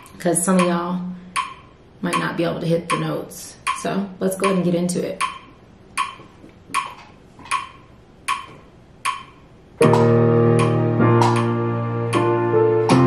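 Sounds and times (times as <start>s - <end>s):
click track: 0.0s - 0.8s, 1.4s - 2.3s, 6.0s - 12.3s
keyboard chords over bass: 9.8s - 13.0s.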